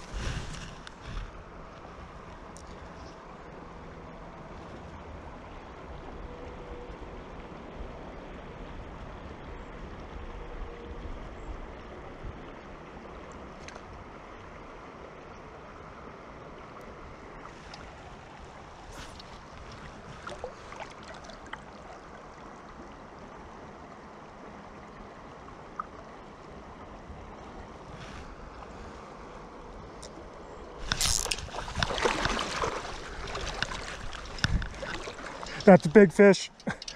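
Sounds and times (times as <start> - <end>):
river water rushing: 12.7 - 36.9
faint ticks: 17.7 - 17.9, 36.5 - 36.9
wind rumble on microphone: 30.8 - 35.7.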